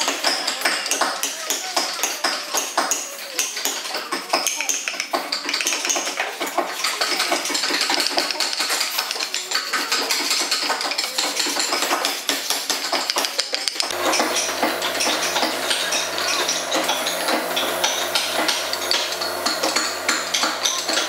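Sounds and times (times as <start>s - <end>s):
air compressor hum: 13.9s - 21.0s
hand sanding wood: 13.9s - 21.0s.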